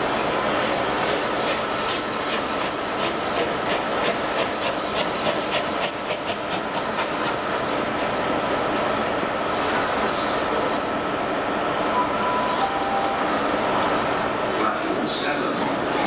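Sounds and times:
steam locomotive exhaust beats: 0.0s - 9.9s
steady steam hiss: 0.0s - 16.0s.

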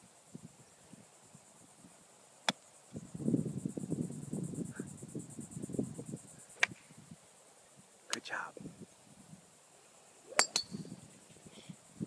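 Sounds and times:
insects buzzing: 0.0s - 12.0s
golf club striking ball: 10.3s - 10.8s.

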